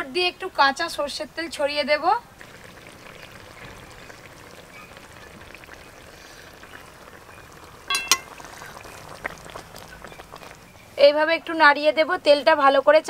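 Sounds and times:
curry simmering and bubbling: 0:01.1 - 0:11.2.

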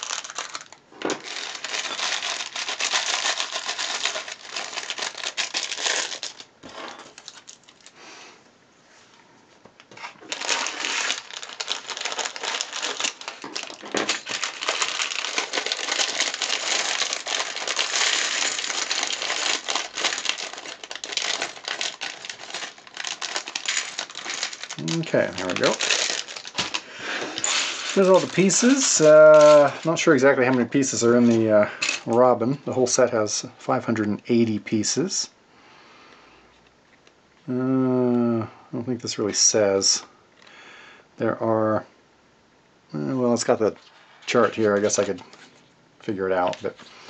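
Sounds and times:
plastic bags crinkling: 0:00.0 - 0:08.0, 0:09.9 - 0:32.2, 0:43.6 - 0:45.6
plastic bricks clattering: 0:10.3 - 0:29.9.

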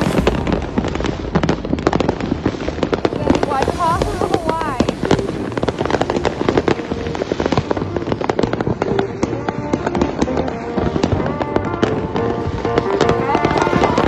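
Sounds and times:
fireworks and firecrackers banging: 0:00.0 - 0:14.0
music: 0:03.1 - 0:14.0.

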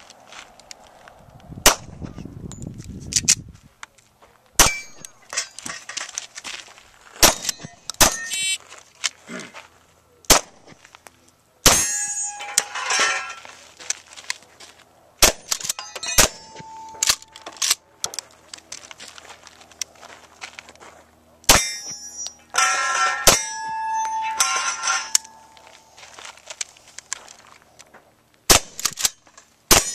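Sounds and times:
steel targets clanging: 0:04.6 - 0:06.2, 0:07.2 - 0:08.6, 0:11.6 - 0:13.6, 0:15.2 - 0:17.8, 0:21.5 - 0:26.2, 0:28.9 - 0:29.9
gunshots: 0:07.2 - 0:08.6, 0:10.3 - 0:10.7, 0:15.2 - 0:17.3, 0:28.5 - 0:29.1.

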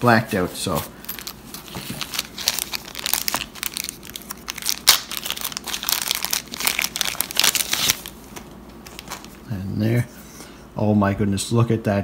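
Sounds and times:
plastic bag crinkling: 0:01.2 - 0:08.2, 0:08.8 - 0:09.4.

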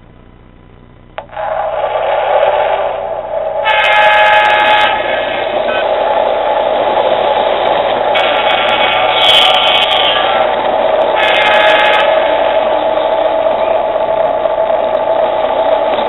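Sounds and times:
toy train running rumble: 0:01.2 - 0:16.0
toy train horn: 0:03.6 - 0:06.0, 0:08.1 - 0:14.0.

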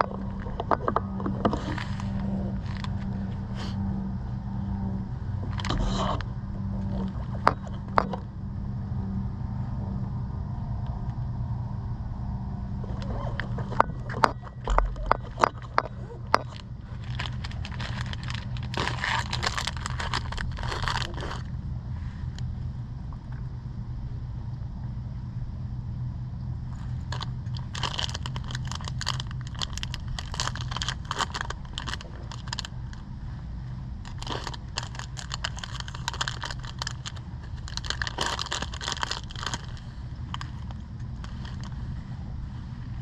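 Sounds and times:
bike clicking and rattling: 0:00.0 - 0:03.4, 0:06.9 - 0:08.2, 0:12.8 - 0:21.5, 0:27.0 - 0:33.0, 0:34.0 - 0:41.8
bike tyres rumbling on road: 0:00.0 - 0:22.7, 0:26.6 - 0:43.0.

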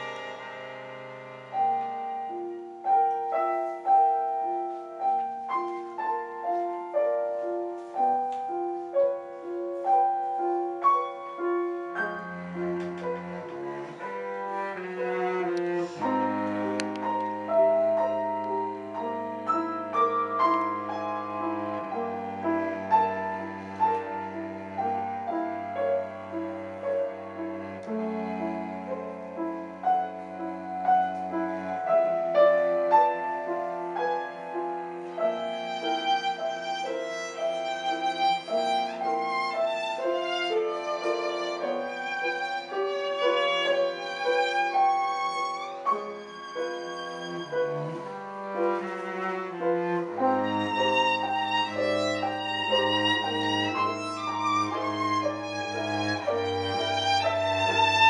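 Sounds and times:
low held cello notes: 0:00.0 - 0:58.0
piano: 0:00.0 - 0:58.0
violin with vibrato: 0:35.0 - 0:58.0.

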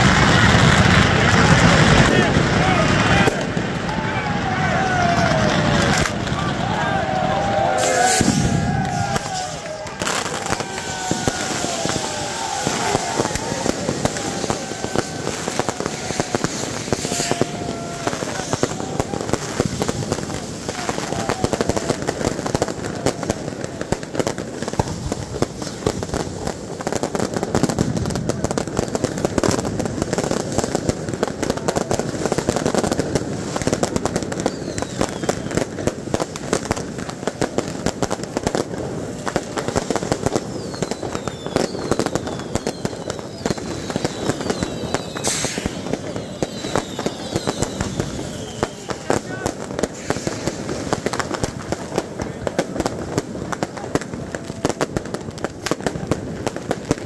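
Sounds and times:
fireworks and firecrackers banging: 0:00.0 - 0:57.0
large crowd noise: 0:00.0 - 0:57.0
short loud hiss: 0:07.7 - 0:09.8, 0:16.4 - 0:17.6, 0:45.2 - 0:46.6, 0:49.9 - 0:51.0
falling whistles: 0:34.4 - 0:35.7, 0:40.4 - 0:49.1.

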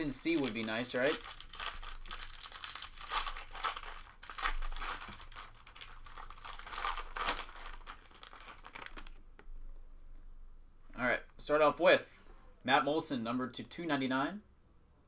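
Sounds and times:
foil wrapper tearing and crinkling: 0:00.0 - 0:09.2.

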